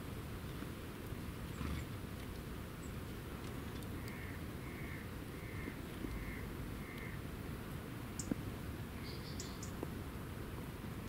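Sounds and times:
high bird chirps: 0:09.0 - 0:09.8.

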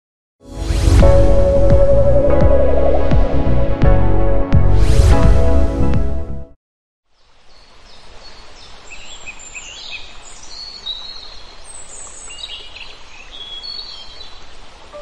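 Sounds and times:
steady outdoor hiss: 0:07.1 - 0:15.0.

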